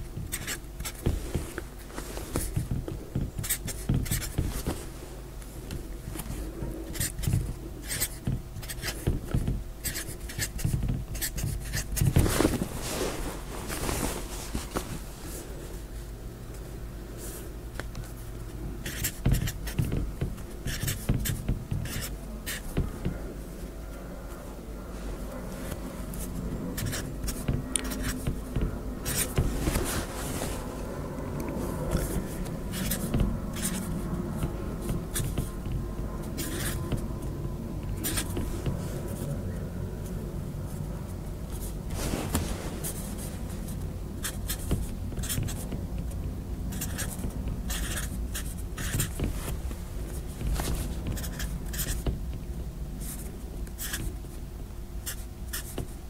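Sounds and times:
marker pen scratching: 0.0s - 4.8s, 5.8s - 12.7s, 17.2s - 23.3s, 25.3s - 39.4s, 42.3s - 52.4s, 53.0s - 54.2s, 55.0s - 56.0s
low room hum: 0.0s - 56.0s.

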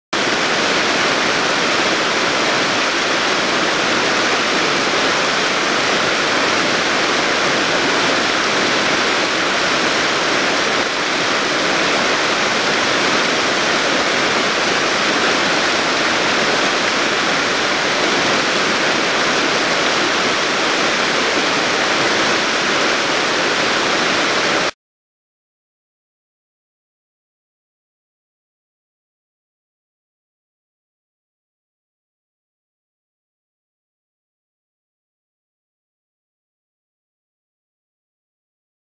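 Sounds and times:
river rapids rushing: 0.2s - 24.7s.

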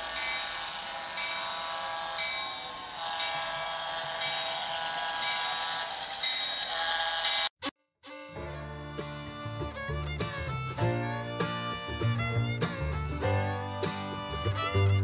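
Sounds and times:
ringing bell strikes: 0.0s - 6.6s.

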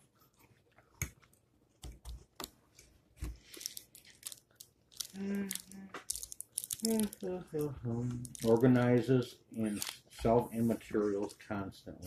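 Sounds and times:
crinkly rustling: 2.7s - 11.5s.

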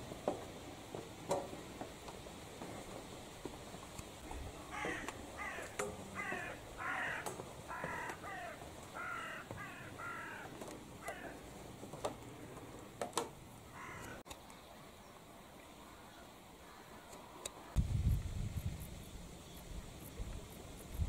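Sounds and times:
crow cawing: 4.7s - 11.4s, 13.7s - 14.2s.

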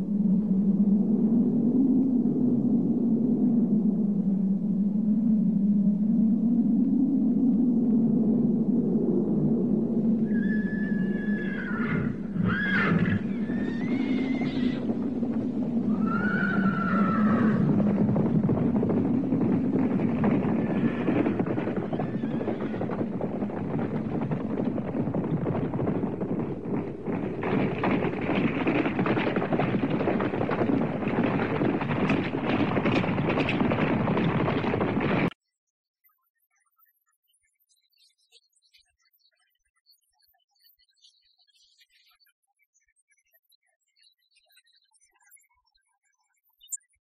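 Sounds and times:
low rumble: 0.0s - 35.4s
horses neighing: 10.2s - 35.3s.

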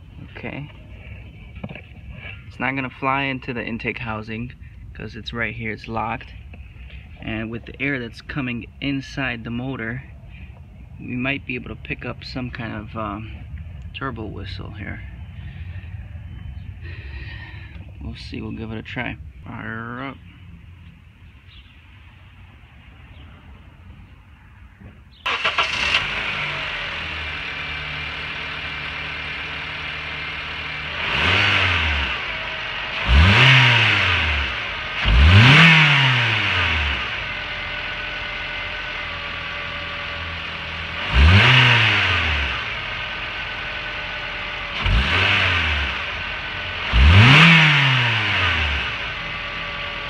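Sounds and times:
car engine starting and revving: 25.1s - 50.0s.

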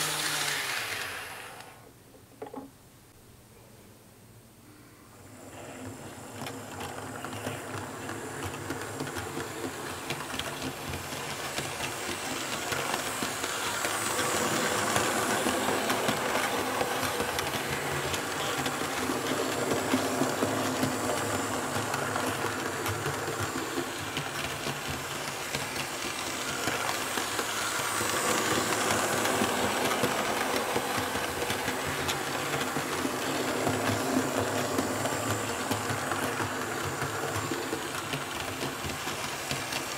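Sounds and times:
model train motor whirring: 0.0s - 1.8s, 5.5s - 39.9s
wheels rattling on rails: 6.0s - 39.9s.

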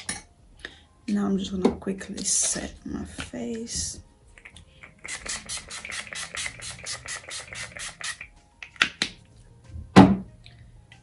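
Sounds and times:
spray bottle misting: 5.0s - 8.3s.

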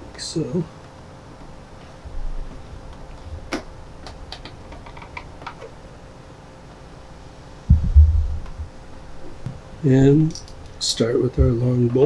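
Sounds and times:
heavy low thump: 7.7s - 10.2s, 11.4s - 11.7s.

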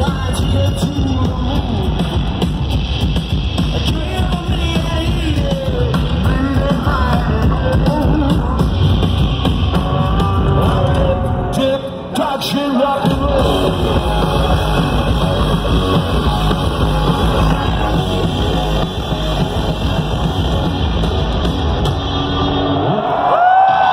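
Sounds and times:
live rock band playing: 0.0s - 23.9s.

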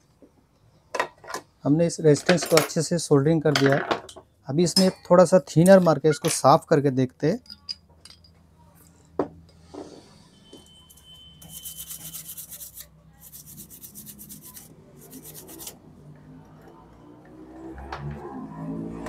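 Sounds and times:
brush scrubbing circuit board: 11.4s - 15.8s.

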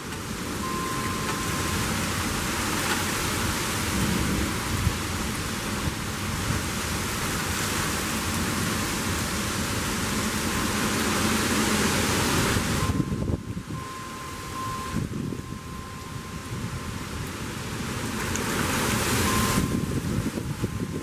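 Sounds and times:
heavy rain and wind: 0.0s - 21.0s
low thunder rumble: 0.4s - 7.1s.

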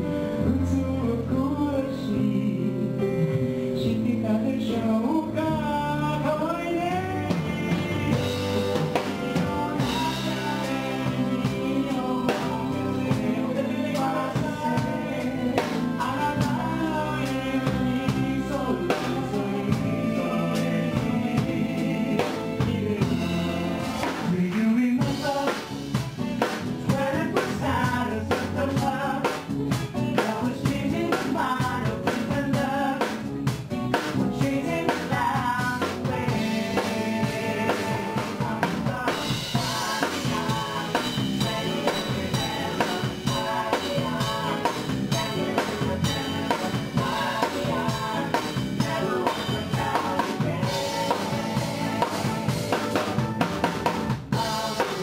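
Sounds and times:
pop band playing: 0.0s - 55.0s
male voices singing in harmony: 3.8s - 25.9s, 26.7s - 33.4s, 34.1s - 55.0s
drum kit beat: 6.2s - 55.0s.

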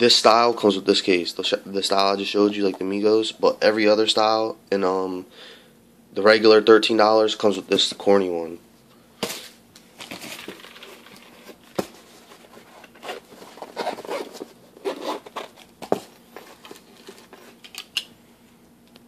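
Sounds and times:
plastic and paper rustling: 10.0s - 17.8s.

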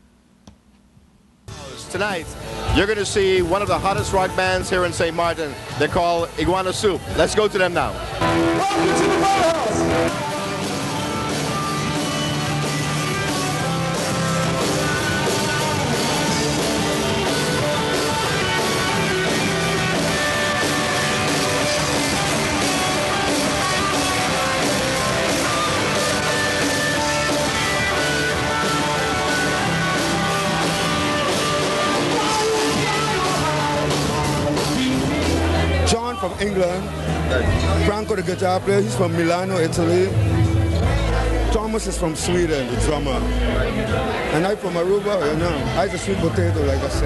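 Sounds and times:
electric guitar: 8.0s - 35.9s
drum kit beat: 8.2s - 35.7s.

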